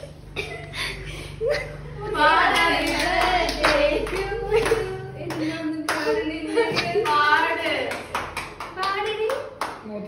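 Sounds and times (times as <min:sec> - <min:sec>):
hands clapping: 0:06.8 - 0:09.9.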